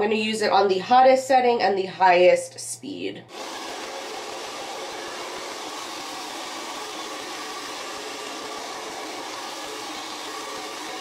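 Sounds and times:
hair dryer running: 3.3s - 11.0s.

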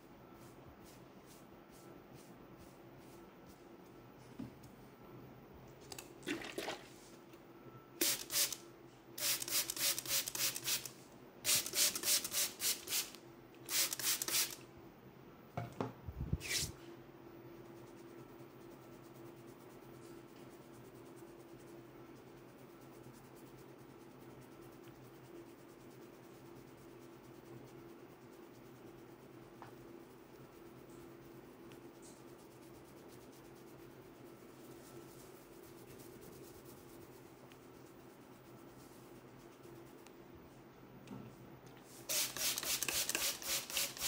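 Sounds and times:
faint steady hum: 0.0s - 44.0s
spray bottle squirts: 8.0s - 8.6s, 42.1s - 44.0s.

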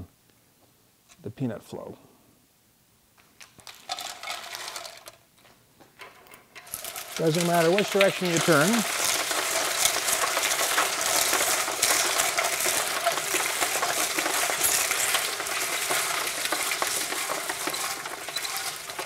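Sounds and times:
nut sheller crackling: 3.2s - 19.0s
nuts pouring into bucket: 3.4s - 5.3s, 6.0s - 19.0s.

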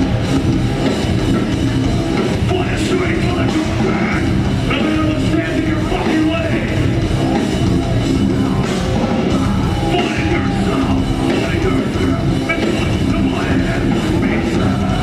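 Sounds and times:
bass guitar: 0.0s - 15.0s
distorted electric guitars: 0.0s - 15.0s
drum kit: 0.0s - 15.0s
vocalist singing: 2.4s - 6.9s, 9.3s - 15.0s.

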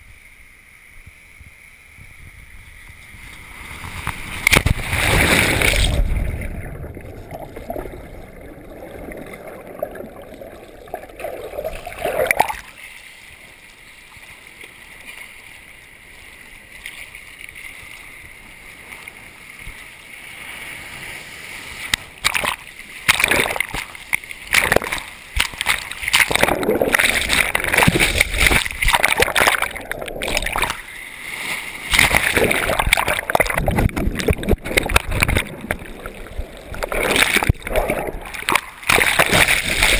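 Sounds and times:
water splashing: 3.2s - 13.3s, 20.5s - 39.9s
rush of bubbles: 4.4s - 12.8s, 22.2s - 30.9s, 31.9s - 39.9s
muffled underwater gurgling: 5.8s - 12.7s, 26.1s - 30.8s, 31.9s - 39.9s.

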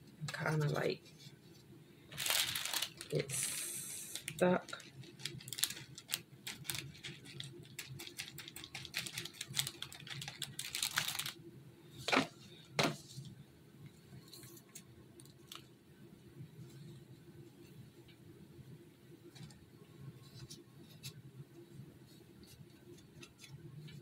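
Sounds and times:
foam balls pattering on plastic plate: 4.2s - 11.4s.

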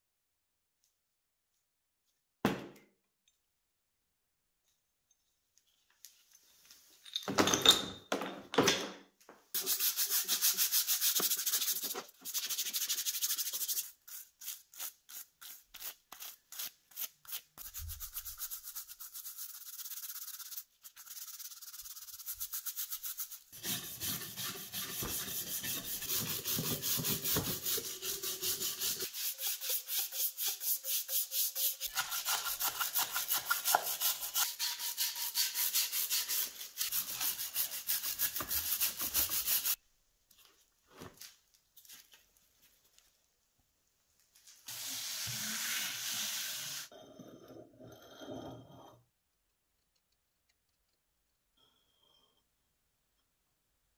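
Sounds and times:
brush scrubbing metal in water: 17.6s - 39.8s.

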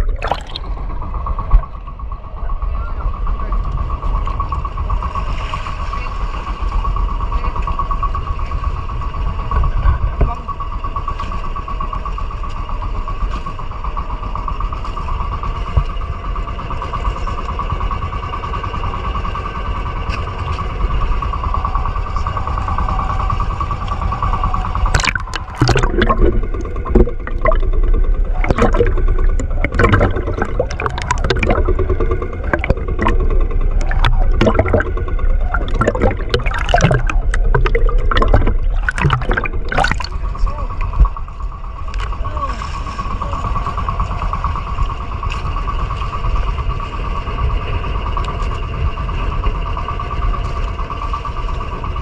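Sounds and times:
water splashing: 0.0s - 1.1s, 24.9s - 40.9s
boat engine droning: 0.0s - 52.0s.

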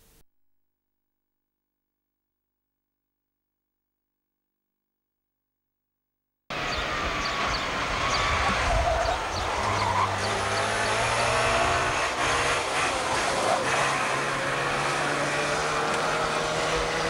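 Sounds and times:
two-stroke car engine revving: 9.3s - 17.0s.

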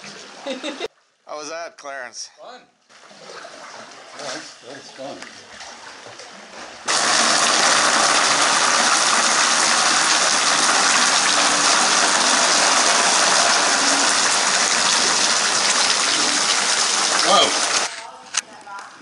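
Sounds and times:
water spray and splashing: 5.6s - 18.0s.

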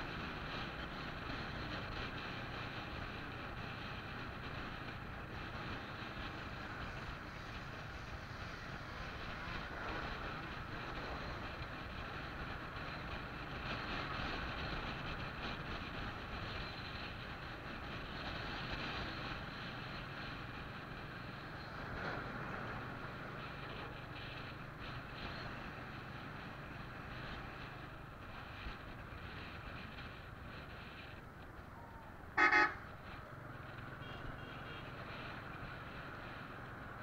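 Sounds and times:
road and wind noise: 0.0s - 37.0s
vehicle engine hum: 0.0s - 37.0s
truck passing: 29.3s - 37.0s.

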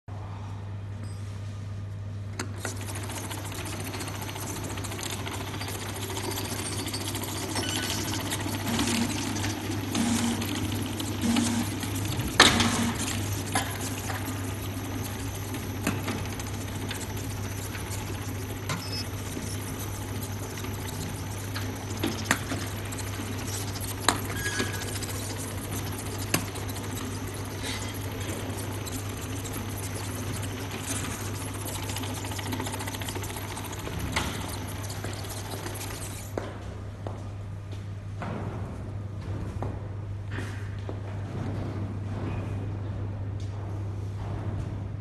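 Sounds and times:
labeling machine humming: 2.4s - 36.4s.

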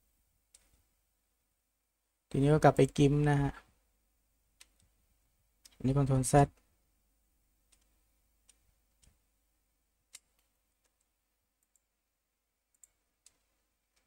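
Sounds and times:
mouse and keyboard clicks: 0.5s - 0.8s, 4.6s - 5.0s, 5.6s - 5.8s, 7.7s - 9.2s, 10.1s - 11.9s, 12.7s - 14.0s.

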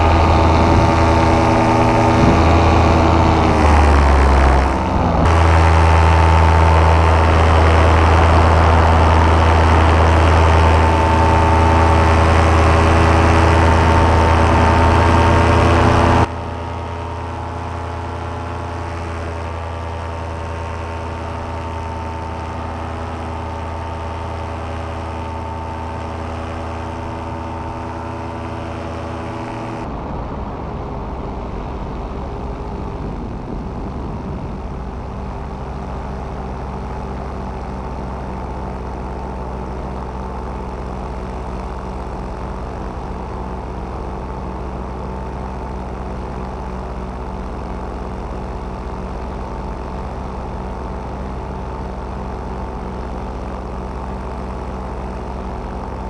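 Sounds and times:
paramotor engine droning: 0.0s - 56.0s.

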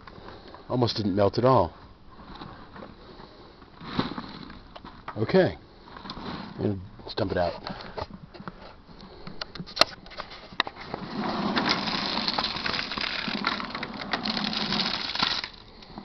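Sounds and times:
ice splashing and clattering: 10.9s - 16.0s.

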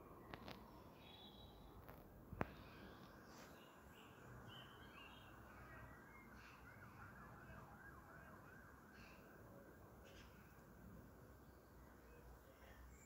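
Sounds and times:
bird chirps: 0.2s - 1.8s, 2.5s - 7.6s, 8.8s - 9.4s
distant siren wavering: 4.3s - 11.4s.

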